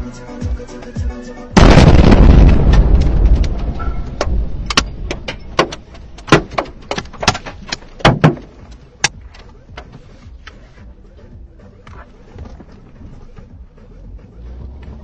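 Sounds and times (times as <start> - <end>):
explosion rumble: 1.6 - 5.3.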